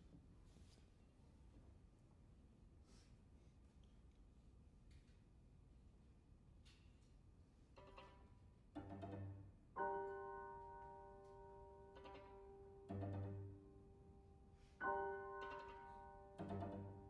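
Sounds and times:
piano trio chamber music: 8.8 - 17.0.

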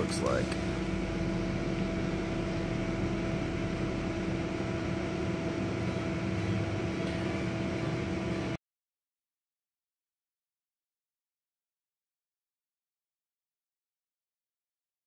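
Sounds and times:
faint steady hum: 0.0 - 8.6.

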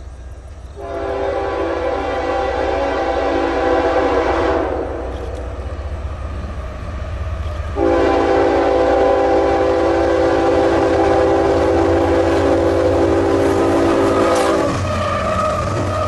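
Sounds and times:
diesel engines rumbling: 0.0 - 16.0
locomotive air horn blasts: 0.8 - 5.1, 7.8 - 16.0.

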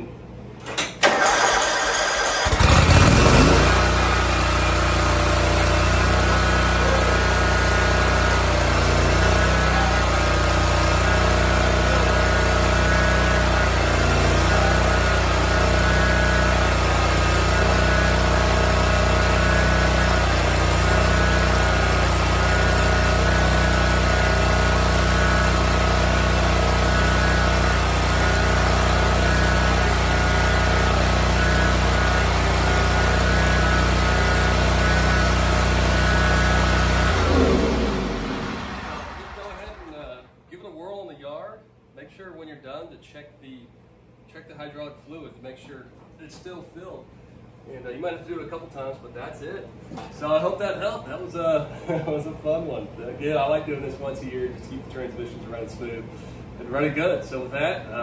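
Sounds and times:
mower engine running: 1.0 - 40.1.

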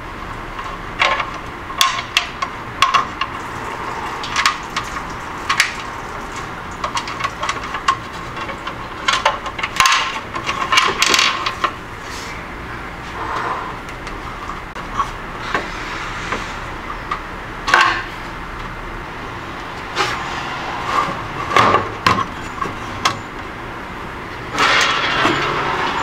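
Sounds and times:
plastic parts clicking and knocking: 1.0 - 3.3, 6.8 - 11.8.

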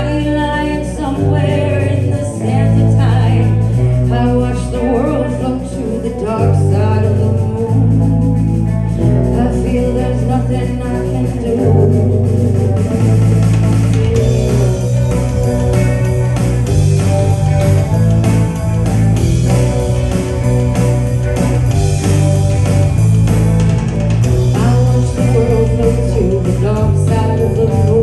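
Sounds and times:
person singing: 0.0 - 13.1, 24.5 - 28.0
bass line: 0.0 - 28.0
guitar: 0.0 - 28.0.

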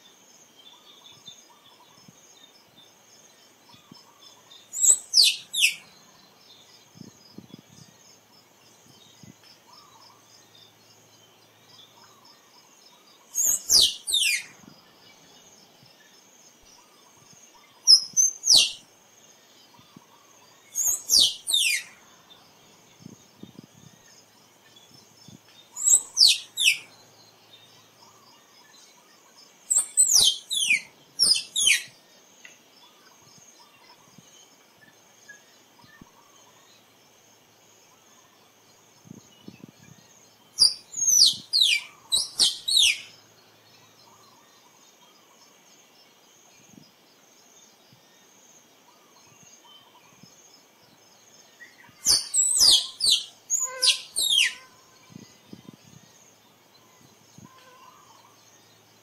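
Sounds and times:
faint insect hum: 0.0 - 59.0
squirrel chirping: 4.8 - 5.8, 13.3 - 14.5, 17.9 - 18.8, 20.8 - 21.9, 25.8 - 26.9, 29.7 - 31.9, 40.6 - 43.1, 52.0 - 54.8.

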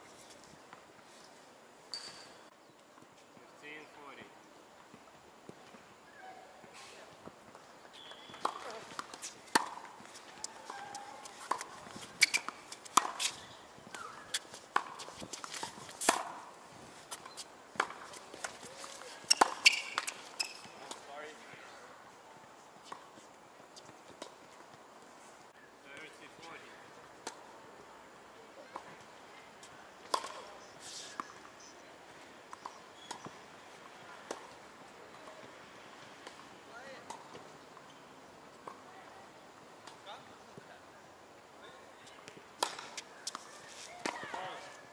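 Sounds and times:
sneaker squeaks on court: 1.9 - 2.4, 8.0 - 9.3, 12.2 - 12.6, 19.2 - 20.8
racket hitting tennis ball: 8.0 - 16.5, 17.8 - 21.0, 30.1 - 30.4, 42.6 - 44.6
tennis ball bouncing: 8.0 - 16.5, 17.8 - 21.0, 30.1 - 30.4, 42.2 - 43.4, 44.0 - 44.6.

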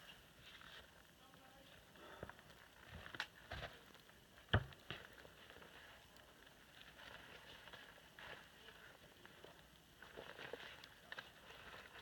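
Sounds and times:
knocks on a stump: 4.5 - 4.7.

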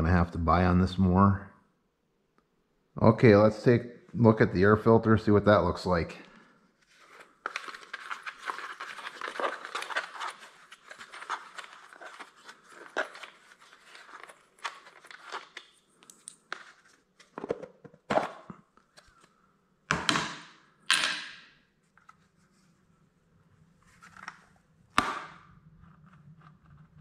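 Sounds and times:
plastic rustling and scraping: 6.8 - 19.3.

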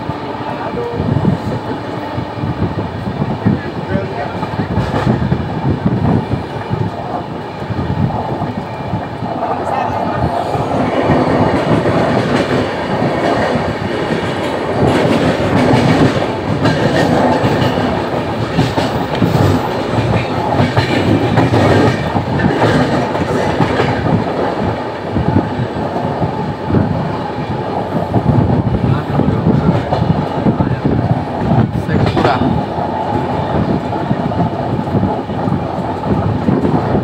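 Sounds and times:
train rumbling at speed: 0.0 - 37.0
wheels clacking on rail joints: 9.2 - 26.4.

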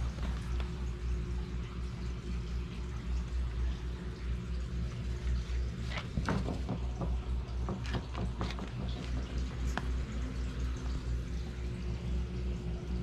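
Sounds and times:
light clicks and knocks: 5.9 - 10.0.

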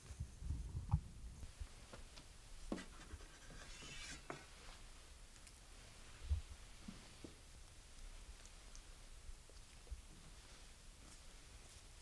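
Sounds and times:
scratchy rustle: 2.7 - 4.9.

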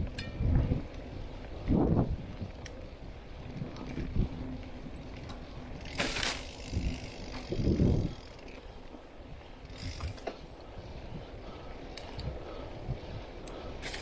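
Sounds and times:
bike freewheel ratchet clicking: 4.8 - 8.7, 9.6 - 10.8, 13.4 - 14.0
bike knocking over rough ground: 5.3 - 8.0.

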